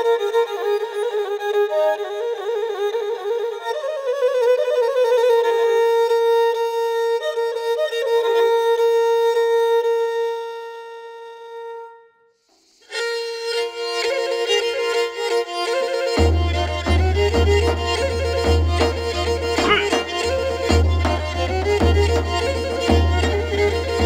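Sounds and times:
bowed lyra melody: 13.5 - 24.0.

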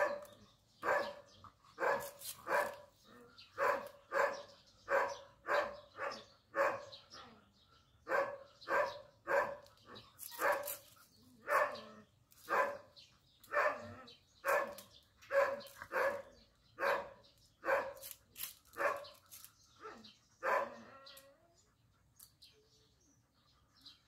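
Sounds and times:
dog barking: 0.0 - 2.8, 3.6 - 7.0, 8.1 - 9.7, 10.4 - 10.8, 11.4 - 12.9, 13.5 - 18.1, 18.8 - 19.1, 19.8 - 21.0.

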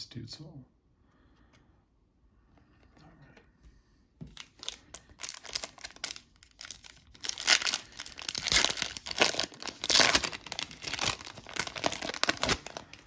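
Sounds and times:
foil wrapper tearing and crinkling: 4.4 - 13.0.

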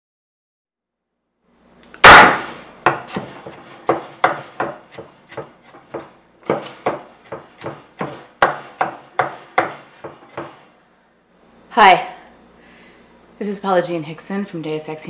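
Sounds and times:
knife chopping on hard surface: 2.0 - 10.7.

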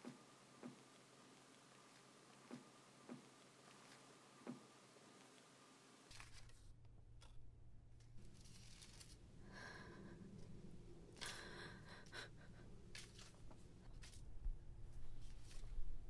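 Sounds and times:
low steady hum: 0.0 - 16.0
photo prints rustling: 0.6 - 4.2, 6.1 - 6.6, 8.2 - 9.2.

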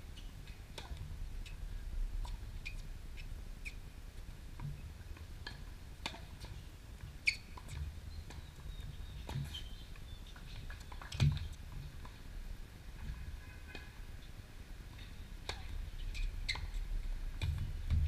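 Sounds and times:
shoes squeaking on court: 7.2 - 11.6, 16.0 - 16.8.

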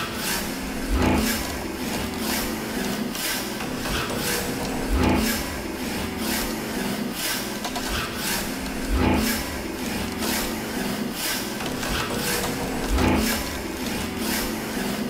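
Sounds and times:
rhythmic rasping scraping: 0.0 - 15.0.

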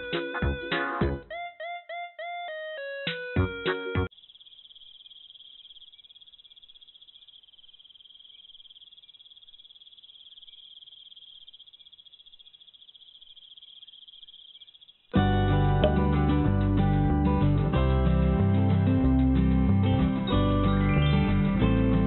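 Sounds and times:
night insects chirring: 4.1 - 15.2.

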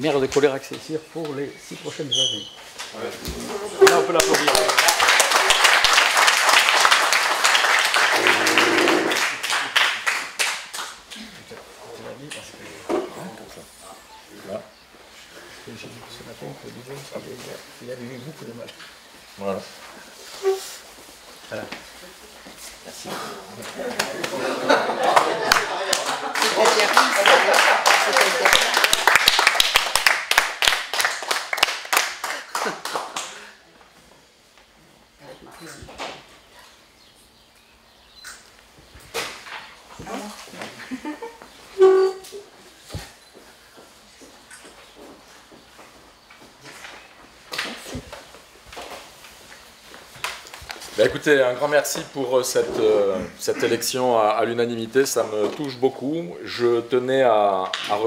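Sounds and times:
people applauding: 3.8 - 11.0, 23.9 - 33.6.

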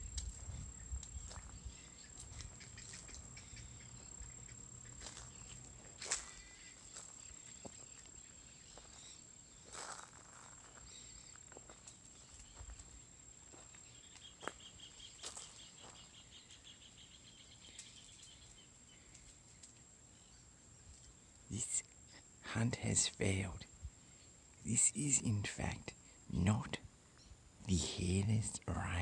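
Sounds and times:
high insect trill: 0.0 - 26.8, 27.6 - 29.0
fast-pulsing insect chirr: 0.5 - 14.6.

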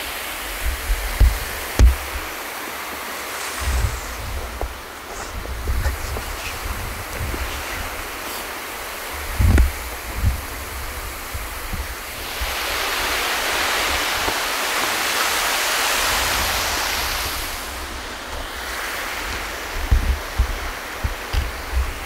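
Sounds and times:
low thumps: 0.9 - 2.3
camera sliding over paving: 3.2 - 15.3.

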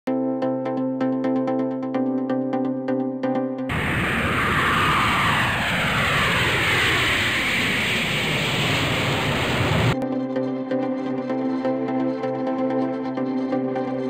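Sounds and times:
jet airliner flying past: 3.7 - 10.0.

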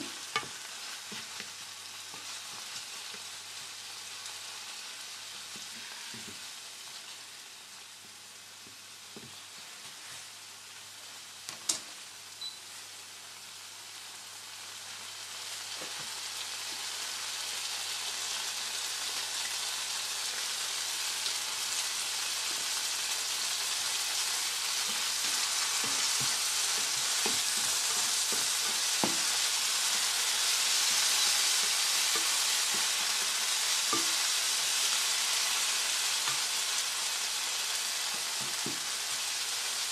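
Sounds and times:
tomatoes sizzling in oil: 0.0 - 39.9
spatula scraping and tapping pan: 0.1 - 3.3, 24.8 - 34.3.

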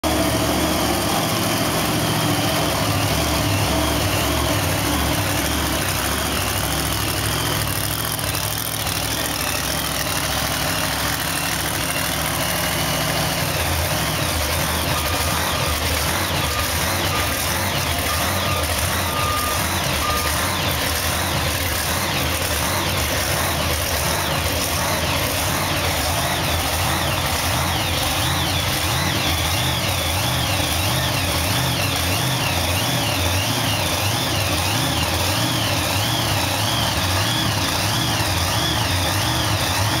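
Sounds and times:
monster truck engine idling: 0.0 - 40.0
short beeps: 14.6 - 22.0.

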